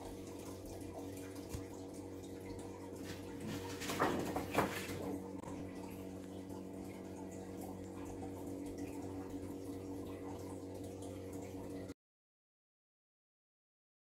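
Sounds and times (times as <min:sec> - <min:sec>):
low hum: 0:00.0 - 0:12.0
paper sheets rustling: 0:03.0 - 0:05.2.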